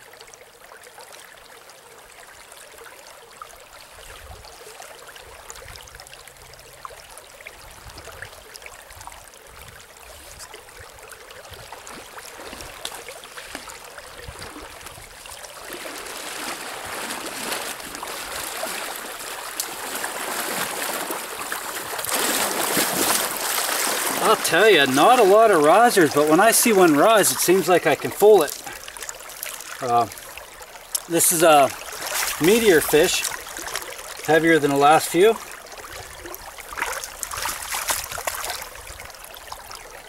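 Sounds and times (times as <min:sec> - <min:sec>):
river water rushing: 0:00.9 - 0:40.0
water splashing around legs: 0:10.1 - 0:40.0.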